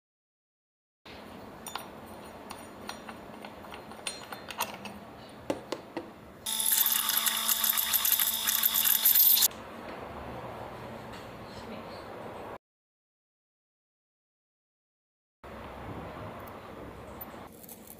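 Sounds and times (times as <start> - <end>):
blender motor whining: 6.5 - 9.5
metallic clicks and scrapes: 6.6 - 9.5, 17.4 - 17.9.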